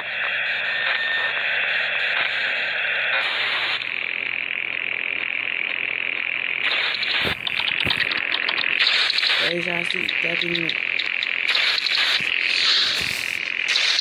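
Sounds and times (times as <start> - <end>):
glitchy electronic static: 0.0 - 14.0
sharp clicks: 6.6 - 14.0.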